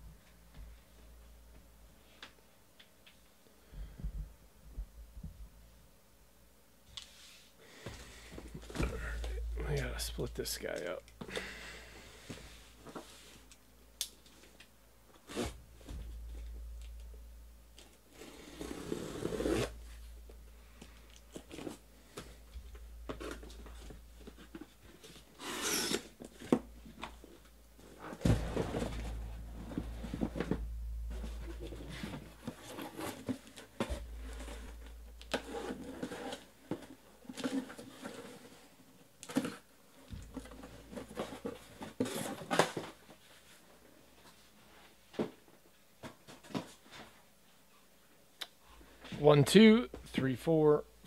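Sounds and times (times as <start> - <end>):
packing tape tearing: 24.4 - 26.6
boxes knocking: 28.1 - 34.9.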